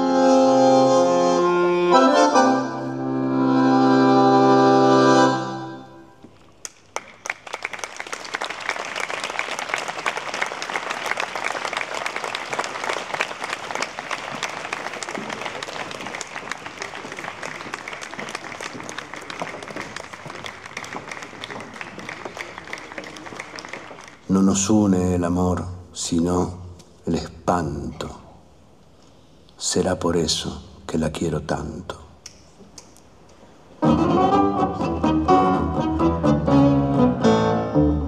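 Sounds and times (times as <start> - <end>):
audience applauding: 6.6 - 24.7.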